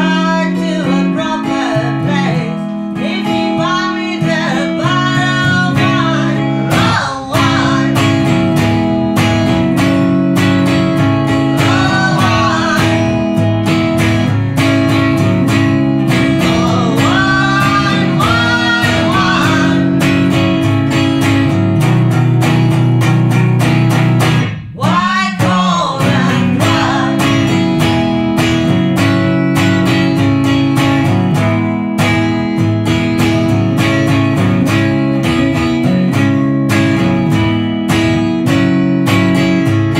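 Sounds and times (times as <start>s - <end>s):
woman singing: 0.0s - 8.8s, 11.0s - 13.5s, 15.5s - 20.6s, 24.7s - 28.5s
strummed acoustic guitar: 0.0s - 39.9s.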